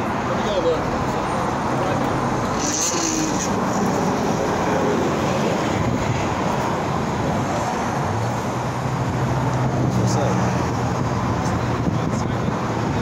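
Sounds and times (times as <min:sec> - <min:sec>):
road traffic: 0:00.0 - 0:13.0
wind buffeting microphone: 0:05.4 - 0:08.1, 0:10.6 - 0:13.0.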